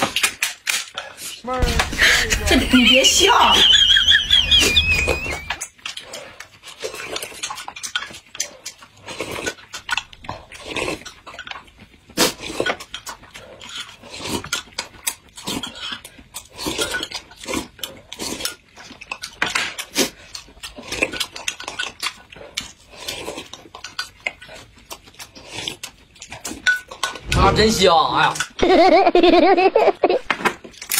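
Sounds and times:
people chewing: 0:00.0 - 0:27.4, 0:28.2 - 0:30.9
slurping from spoons: 0:04.8 - 0:27.3.

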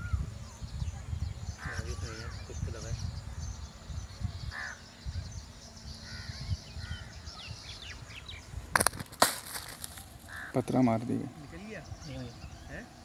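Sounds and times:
wind rumble on microphone: 0:00.0 - 0:13.0
crows cawing: 0:04.5 - 0:04.8, 0:10.2 - 0:10.8.

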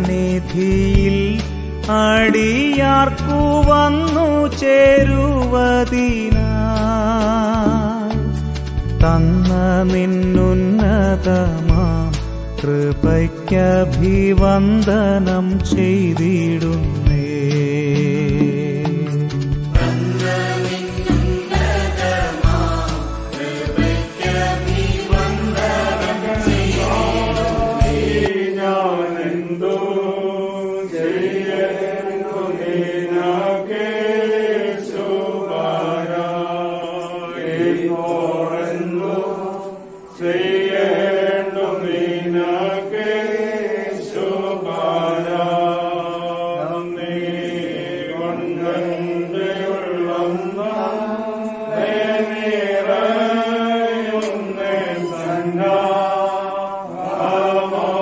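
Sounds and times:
slow hymn singing: 0:00.0 - 0:58.0.

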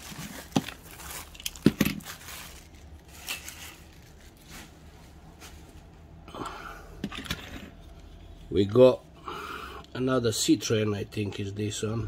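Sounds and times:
soft rustling: 0:00.0 - 0:06.1.

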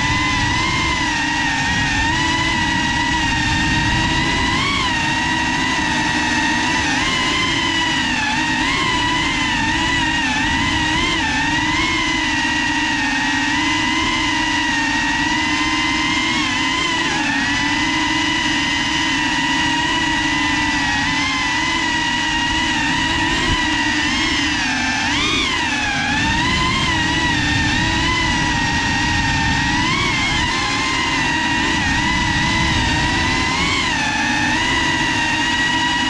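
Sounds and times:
drone motors whining: 0:00.0 - 0:36.0.

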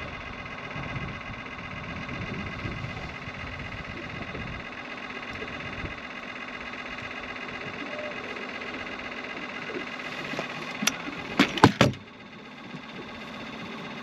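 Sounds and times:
boat motor whirring: 0:00.0 - 0:14.0
sharp knocks: 0:11.4 - 0:12.0.

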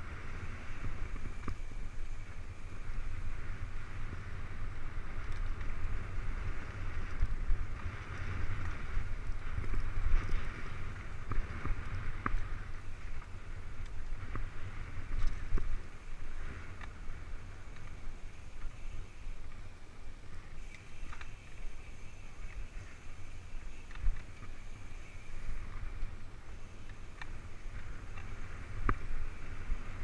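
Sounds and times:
bike clicks and rattles: 0:00.0 - 0:30.0
tyres hissing on dirt: 0:20.2 - 0:28.7.

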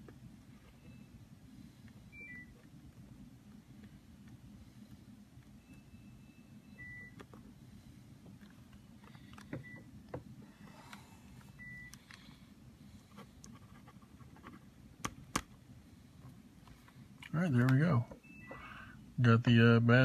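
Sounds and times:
low room hum: 0:00.0 - 0:20.0
short faint beeps: 0:18.2 - 0:19.0.

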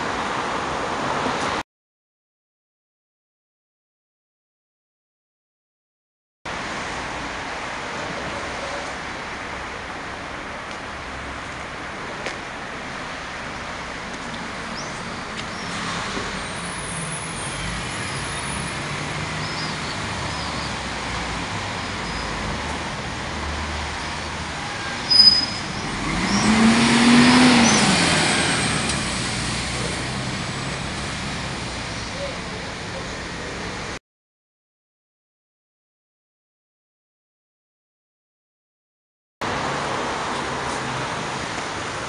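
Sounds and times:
street traffic: 0:00.0 - 0:01.6, 0:06.5 - 0:34.0, 0:39.4 - 0:42.0
vehicle passing by: 0:15.3 - 0:33.0.

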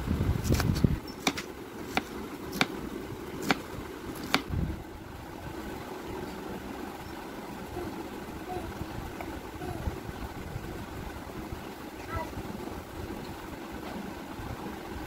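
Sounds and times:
low background hum: 0:00.0 - 0:15.0
knife chopping on wooden board: 0:01.2 - 0:02.8, 0:03.4 - 0:04.5.

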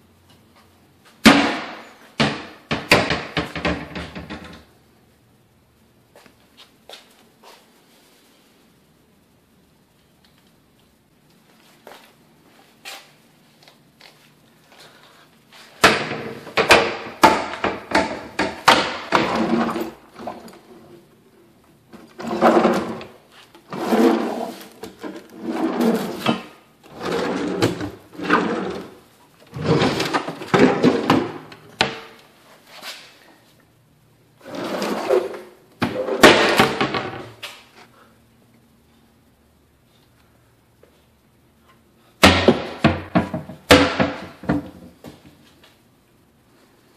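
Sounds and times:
wooden cabinet doors and drawers closing: 0:01.3 - 0:04.7, 0:15.8 - 0:21.0, 0:22.0 - 0:32.2, 0:34.4 - 0:37.4.

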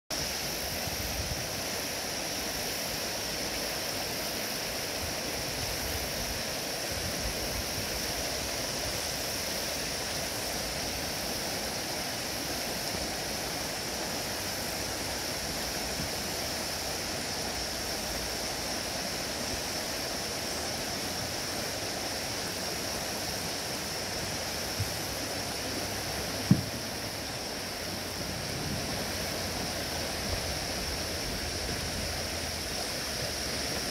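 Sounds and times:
water rushing over rocks: 0:00.1 - 0:33.9
short thump: 0:26.4 - 0:26.9.

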